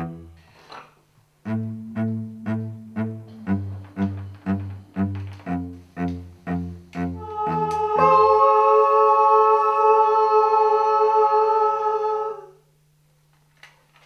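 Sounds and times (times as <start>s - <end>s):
low bass notes: 1.4s - 8.1s
voices singing in harmony: 6.1s - 12.7s.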